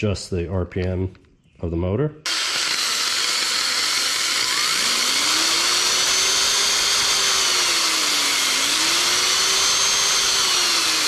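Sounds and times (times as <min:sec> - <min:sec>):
drill motor whine: 0:02.3 - 0:11.0.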